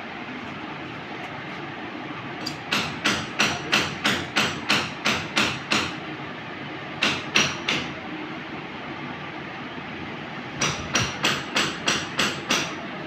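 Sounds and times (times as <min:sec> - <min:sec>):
hammer striking: 0:02.4 - 0:06.0, 0:07.0 - 0:07.9, 0:10.6 - 0:12.8.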